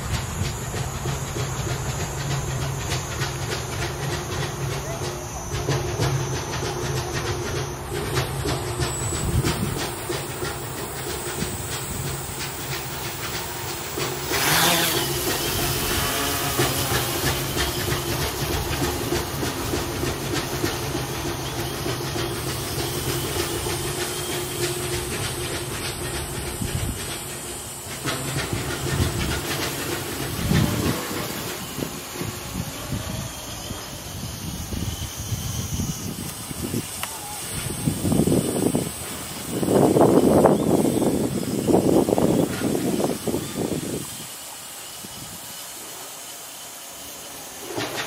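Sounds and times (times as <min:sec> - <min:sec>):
construction work clattering: 0:00.0 - 0:34.1, 0:47.5 - 0:48.0
drone motors humming: 0:00.0 - 0:48.0
rush of prop wash: 0:00.0 - 0:48.0.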